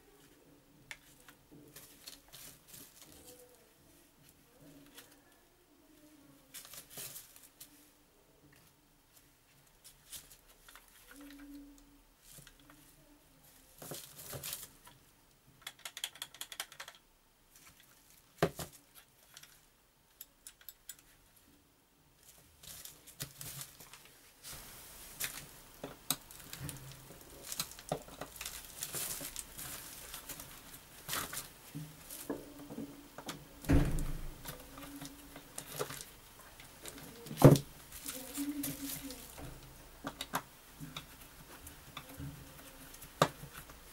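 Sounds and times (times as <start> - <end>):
small clicks and knocks: 15.6 - 17.0, 17.7 - 21.1
plastic sheet crinkling: 22.2 - 32.7, 33.9 - 40.3.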